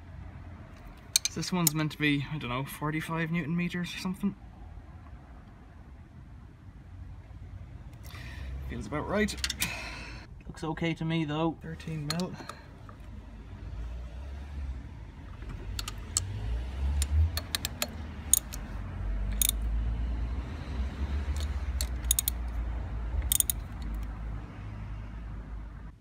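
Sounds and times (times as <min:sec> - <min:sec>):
ratchet clicking on bolts: 0:00.9 - 0:01.8, 0:12.0 - 0:12.6, 0:15.4 - 0:18.7, 0:19.3 - 0:19.6, 0:21.3 - 0:22.5, 0:23.2 - 0:24.1.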